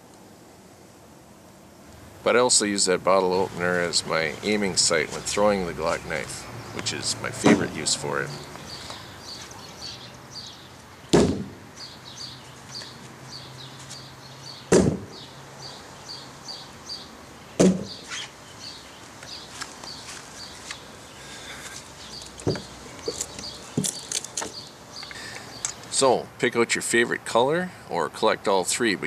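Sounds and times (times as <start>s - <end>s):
bird chirping: 2.5s - 26.1s
knives thunking into wooden board: 7.4s - 7.8s, 14.7s - 15.2s, 17.6s - 18.0s.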